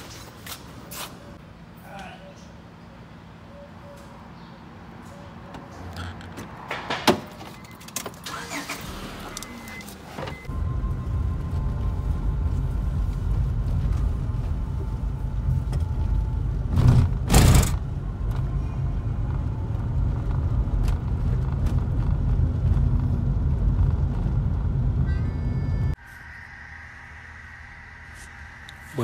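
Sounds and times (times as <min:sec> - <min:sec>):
car road rumble inside cabin: 0:09.4 - 0:26.0.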